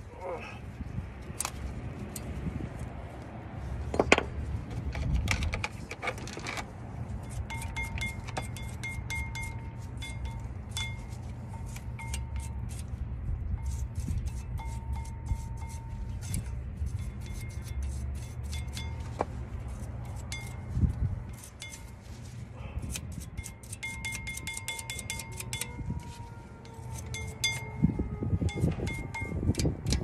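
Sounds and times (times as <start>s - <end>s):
light metallic clicks and scrapes: 1.2s - 13.0s, 13.6s - 25.8s
brush scrubbing metal: 7.0s - 27.8s.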